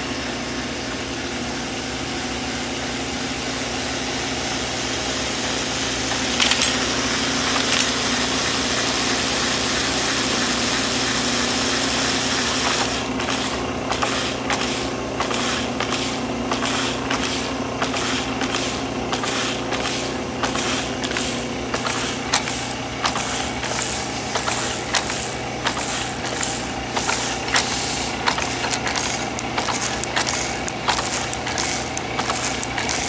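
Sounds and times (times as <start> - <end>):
knitting machine hum: 6.0 - 8.9, 12.2 - 33.0
rhythmic metallic clicking: 13.9 - 33.0.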